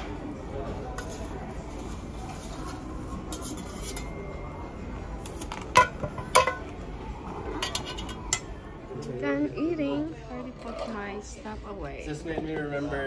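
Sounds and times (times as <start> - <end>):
metal utensil scraping a plate: 2.2 - 4.4, 7.6 - 8.6
clinking of plates and dishes: 2.4 - 6.9, 7.5 - 8.7.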